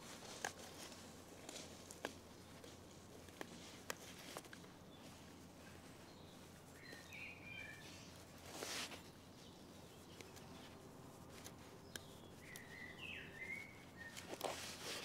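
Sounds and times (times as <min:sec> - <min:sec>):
bird chirping: 0:03.5 - 0:15.0
faint clicks: 0:11.3 - 0:12.8.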